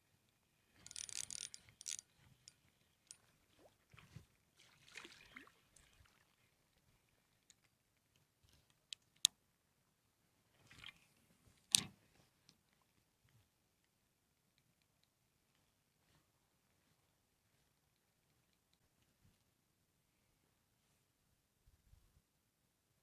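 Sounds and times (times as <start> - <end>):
fishing reel rustles and clicks: 0.7 - 3.4
sharp reel click: 0.8 - 2.0.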